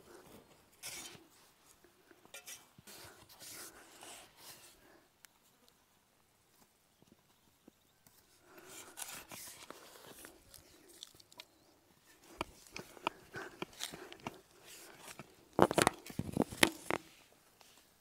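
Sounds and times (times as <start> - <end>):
hand spade digging dry soil: 0.4 - 1.4, 2.3 - 4.7, 8.6 - 17.1.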